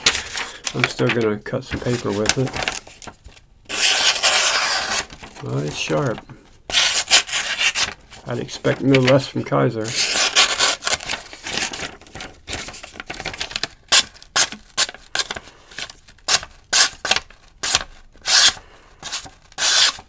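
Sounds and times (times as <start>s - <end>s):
knife slicing paper: 3.7s - 6.1s, 6.7s - 8.0s, 9.9s - 11.8s, 17.6s - 20.0s.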